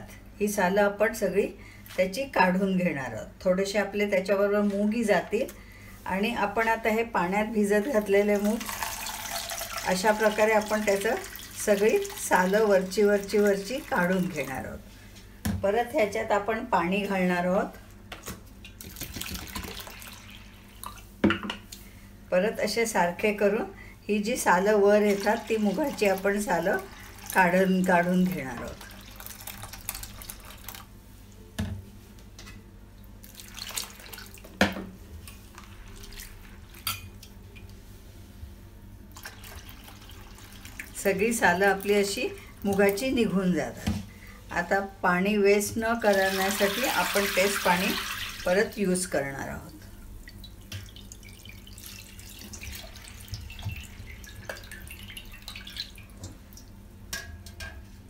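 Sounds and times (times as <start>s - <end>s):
water pouring and splashing: 8.4s - 14.5s, 18.8s - 21.0s, 28.4s - 30.9s, 33.2s - 34.4s, 35.5s - 36.8s, 39.2s - 41.0s, 46.1s - 48.6s, 50.3s - 56.7s.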